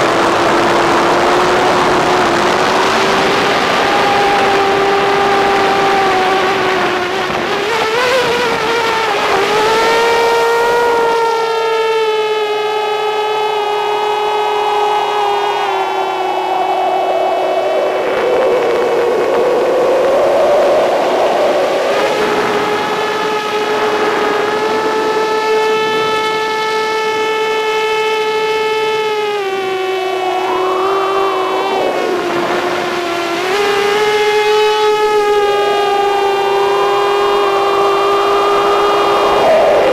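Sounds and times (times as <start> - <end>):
drone motors whining: 0.0 - 39.9.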